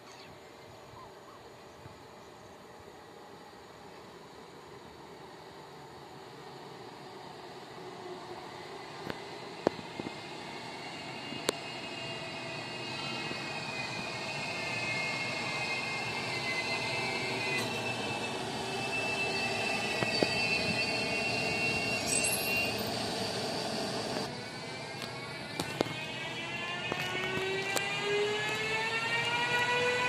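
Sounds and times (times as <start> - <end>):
train rolling rumble: 1.7 - 30.0
high whining tones: 8.4 - 30.0.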